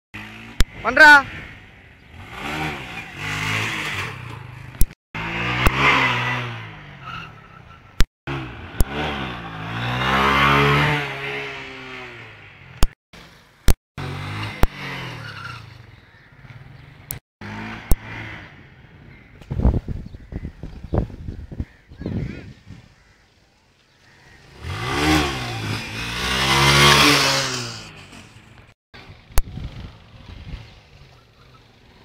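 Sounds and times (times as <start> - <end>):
engine revving: 0.2 - 7.4, 8.0 - 13.0, 13.6 - 15.8, 16.5 - 18.8, 24.4 - 30.9.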